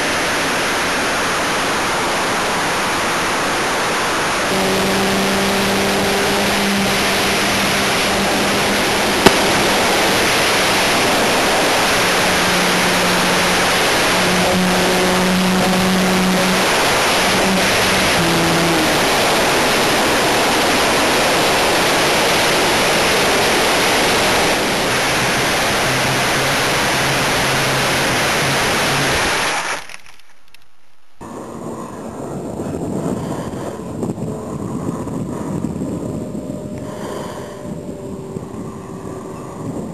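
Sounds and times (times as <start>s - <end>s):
model airplane motor hum: 0.0s - 29.4s
rushing airflow: 0.0s - 29.8s, 31.2s - 39.9s.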